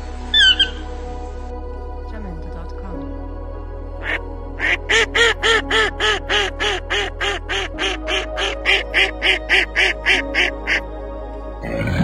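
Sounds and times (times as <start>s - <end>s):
background music: 0.0s - 12.0s
duck quacking: 4.0s - 10.8s.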